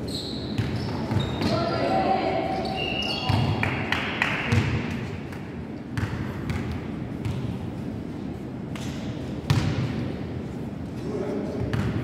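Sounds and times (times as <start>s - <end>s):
basketball bouncing on floor: 6.0s - 7.6s, 9.5s - 9.8s.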